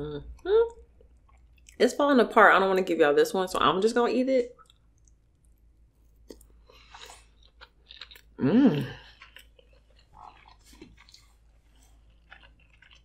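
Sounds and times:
person chewing food: 0:00.7 - 0:01.8, 0:04.6 - 0:13.0
person humming mm: 0:08.4 - 0:09.0.

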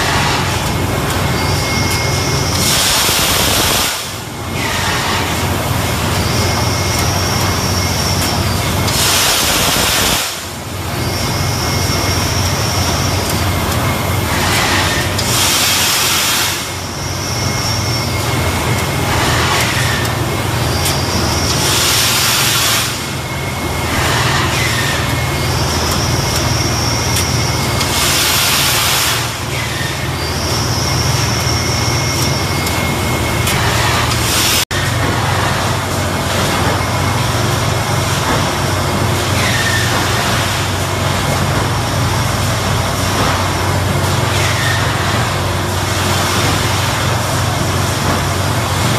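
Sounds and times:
machine humming with high whine: 0:00.0 - 0:48.9
loud air hiss bursts: 0:02.6 - 0:05.1, 0:08.9 - 0:10.6, 0:14.6 - 0:16.8, 0:21.6 - 0:23.1, 0:27.9 - 0:29.4.

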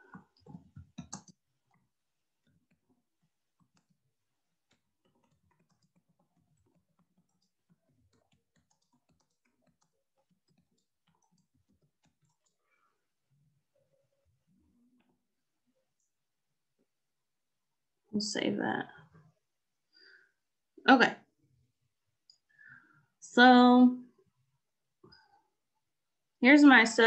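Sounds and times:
typing on computer keyboard: 0:00.1 - 0:01.8, 0:04.6 - 0:12.6.

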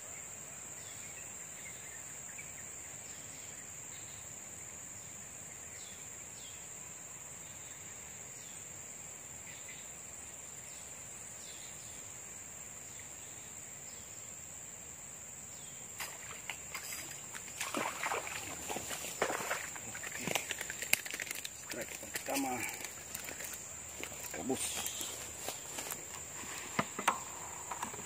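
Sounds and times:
splashing in water: 0:16.0 - 0:25.8
high-pitched insect drone: 0:16.0 - 0:28.0.

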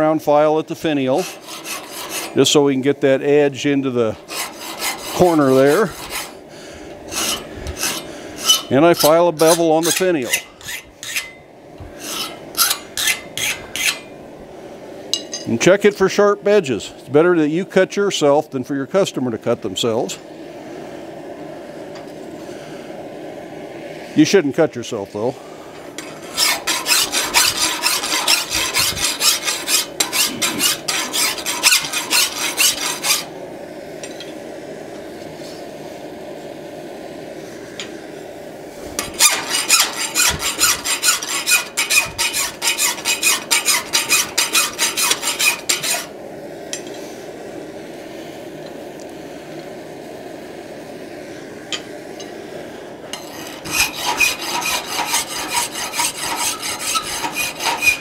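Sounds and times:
hand file rasping on metal: 0:01.1 - 0:02.5, 0:04.2 - 0:06.4, 0:07.1 - 0:11.4, 0:12.0 - 0:14.1, 0:26.0 - 0:33.3, 0:39.0 - 0:46.1, 0:53.2 - 0:58.0.

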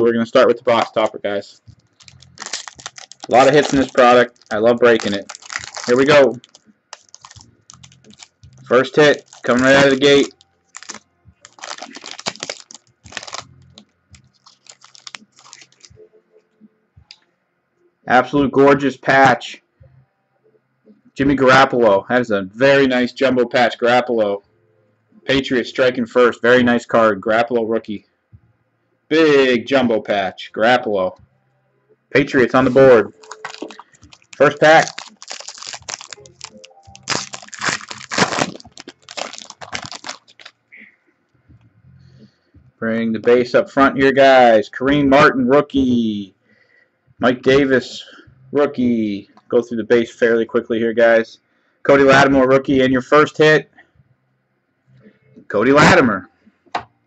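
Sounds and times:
foil wrapper crinkling: 0:01.8 - 0:15.9, 0:32.7 - 0:40.6.

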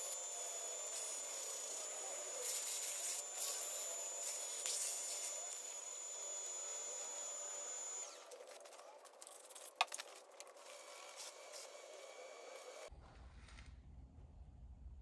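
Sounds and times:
wood lathe whining: 0:00.0 - 0:08.2.

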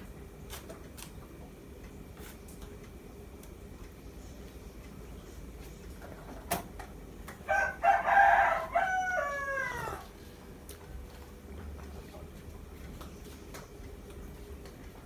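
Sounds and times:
rooster crowing: 0:07.4 - 0:10.1.

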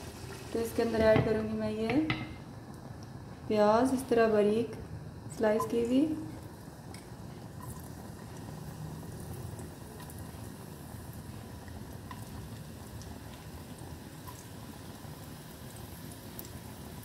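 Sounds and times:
onions sizzling in oil: 0:00.0 - 0:01.8, 0:05.3 - 0:17.0.

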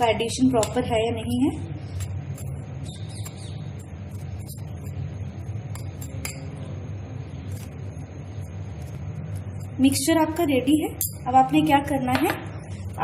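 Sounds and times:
steady low hum: 0:00.0 - 0:13.0
spoon scraping glass bowl: 0:01.9 - 0:05.1.

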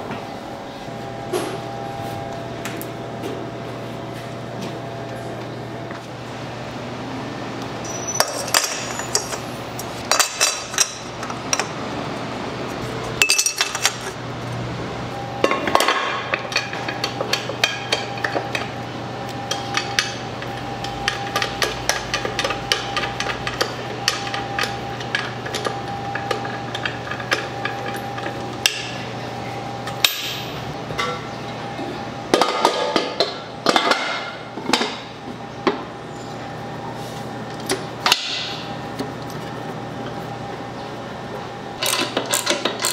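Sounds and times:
steady low hum: 0:00.0 - 0:42.9
utensils and dishes clinking: 0:07.8 - 0:11.7, 0:13.2 - 0:14.2, 0:15.4 - 0:29.0, 0:41.8 - 0:42.9.

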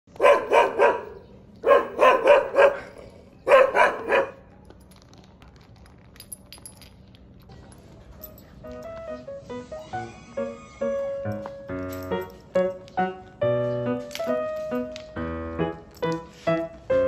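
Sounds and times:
music: 0:07.8 - 0:17.0.

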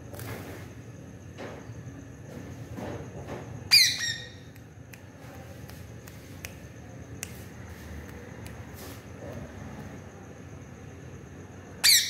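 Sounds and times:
parakeet squawk: 0:03.7 - 0:04.4.

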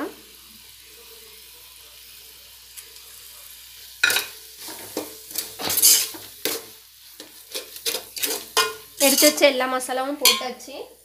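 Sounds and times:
faint sizzle of frying: 0:00.0 - 0:11.0
steel ladle scraping a pot: 0:04.0 - 0:09.4.

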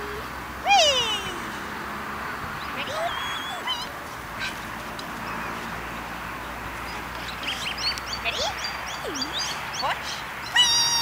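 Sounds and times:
birds chirping: 0:02.4 - 0:11.0.

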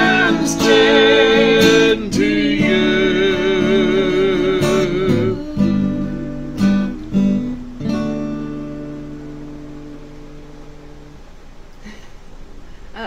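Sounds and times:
woman singing with vibrato: 0:00.0 - 0:06.4
acoustic guitar strumming: 0:00.0 - 0:11.6.

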